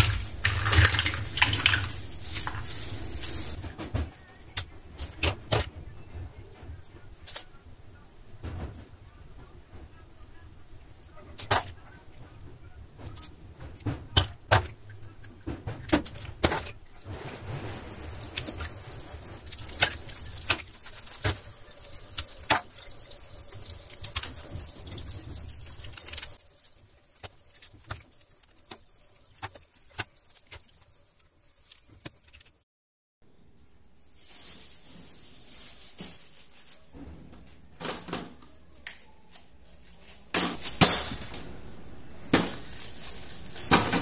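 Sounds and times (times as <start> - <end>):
objects clicking and knocking: 0.0 - 5.8.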